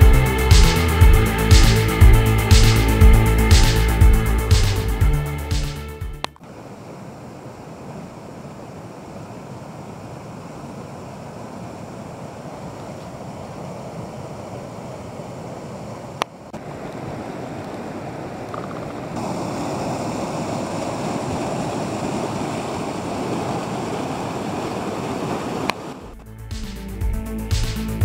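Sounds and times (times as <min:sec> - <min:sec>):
music: 0:00.0 - 0:06.4, 0:26.2 - 0:28.0
stream rushing over rocks: 0:06.4 - 0:26.1.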